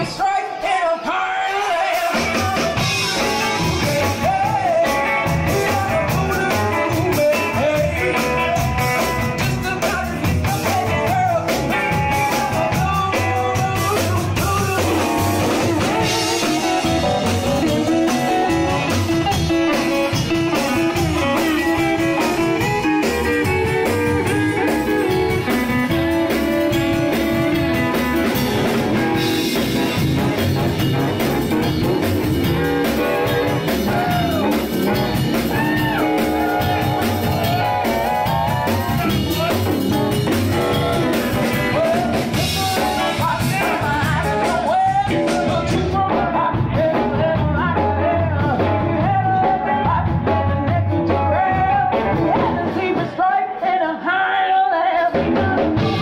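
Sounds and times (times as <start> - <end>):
blues rock and roll song: 0.0 - 56.0.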